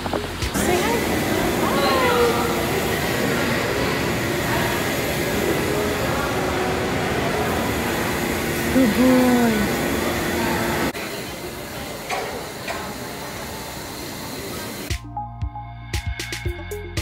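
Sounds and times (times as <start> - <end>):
crowd noise: 0.0 - 14.9
ventilation noise: 0.0 - 14.9
person calling out: 8.8 - 9.8.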